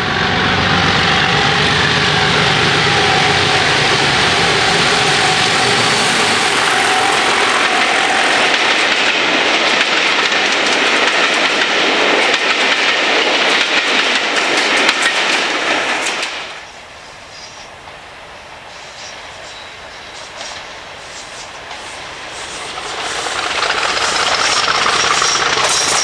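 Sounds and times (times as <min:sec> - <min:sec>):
train wheels clattering over rail joints: 0:07.6 - 0:16.6, 0:20.2 - 0:26.0.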